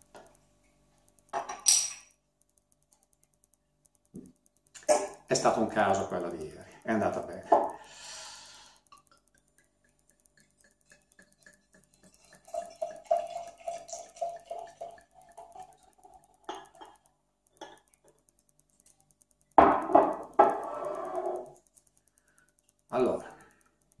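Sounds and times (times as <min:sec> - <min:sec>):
small clicks: 0:00.0 - 0:24.0.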